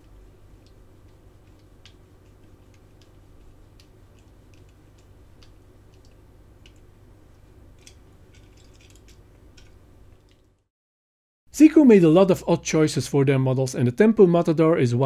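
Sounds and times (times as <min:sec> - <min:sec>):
steady low hum: 0:00.0 - 0:10.7.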